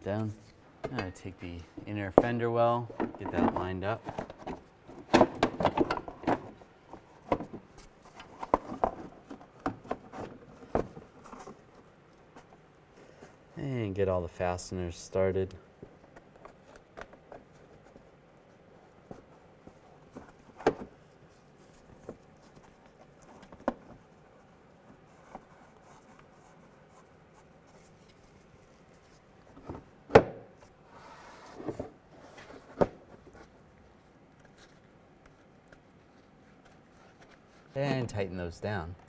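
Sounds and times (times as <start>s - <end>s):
plastic rubbing and rustling: 2.1s - 13.5s.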